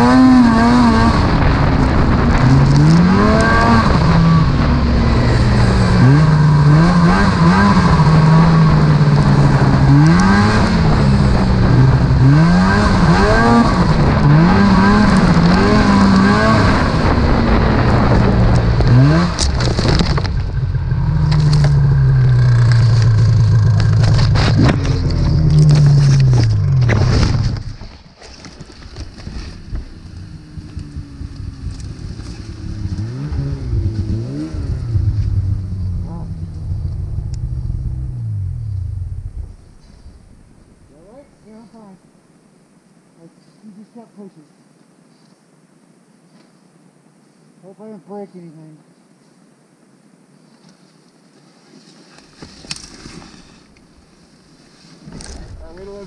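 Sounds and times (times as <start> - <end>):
snowmobile engine revving: 0.0 - 27.7, 29.4 - 40.4
branches rustling: 18.6 - 41.8, 50.3 - 56.0
knocks and scrapes: 22.5 - 30.8.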